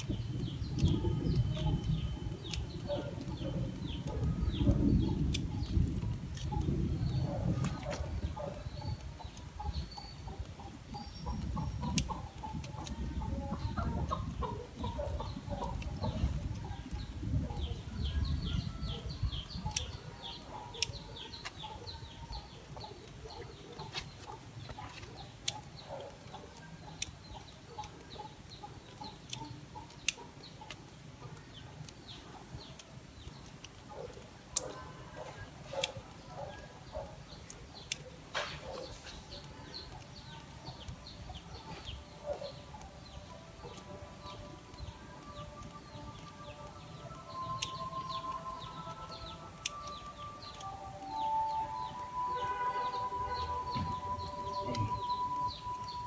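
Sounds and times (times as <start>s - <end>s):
birds calling: 0.0s - 56.0s
pruning shears snipping twigs: 18.9s - 42.1s, 44.6s - 52.0s.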